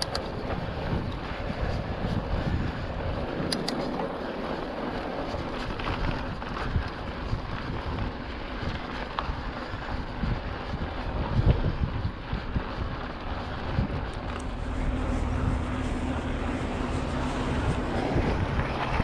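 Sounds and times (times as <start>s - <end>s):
wind rushing over microphone: 0.0s - 19.0s
low rumble: 13.5s - 19.0s.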